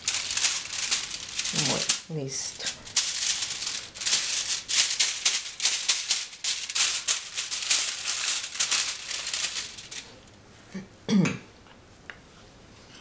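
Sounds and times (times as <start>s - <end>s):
aluminium foil crinkling: 0.0s - 10.4s.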